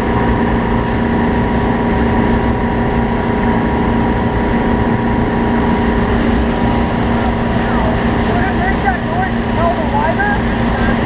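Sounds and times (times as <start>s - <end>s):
boat engine droning: 0.0s - 11.0s
rushing water: 0.0s - 11.0s.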